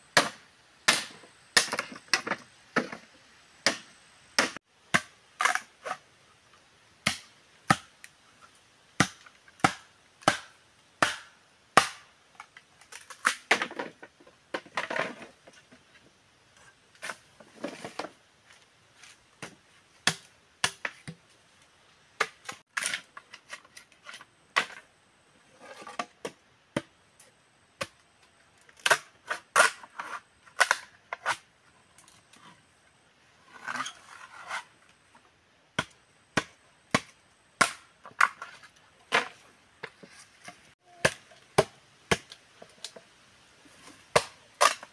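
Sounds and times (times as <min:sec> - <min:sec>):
machete chopping bamboo: 0:00.2 - 0:03.0, 0:03.6 - 0:06.0, 0:07.0 - 0:08.1, 0:09.0 - 0:12.1, 0:19.4 - 0:21.2, 0:28.8 - 0:29.8, 0:35.8 - 0:38.5, 0:40.8 - 0:43.0, 0:44.1 - 0:44.9
rustling and scraping: 0:12.4 - 0:20.0, 0:22.3 - 0:26.4, 0:28.7 - 0:35.4, 0:38.0 - 0:41.4, 0:42.5 - 0:44.1.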